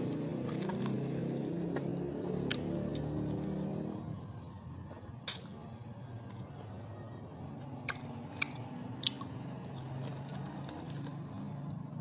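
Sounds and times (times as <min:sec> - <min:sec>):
person biting and chewing: 0:07.8 - 0:11.4.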